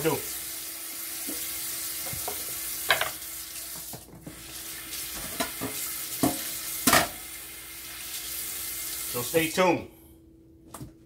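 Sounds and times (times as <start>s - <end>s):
faucet running into steel sink: 0.0s - 9.5s
water splashes and knocks: 1.2s - 4.4s, 5.1s - 7.2s.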